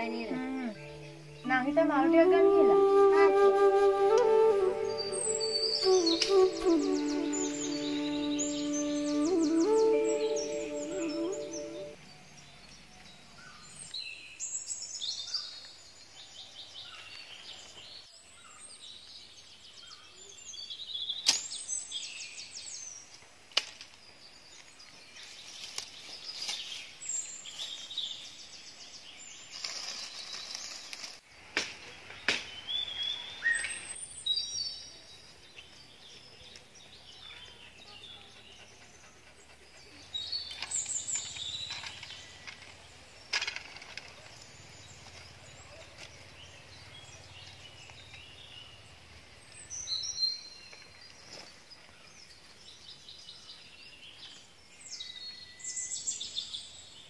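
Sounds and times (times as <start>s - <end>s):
birds chirping and whistling: 0.0s - 15.6s, 32.2s - 34.9s, 35.5s - 57.0s.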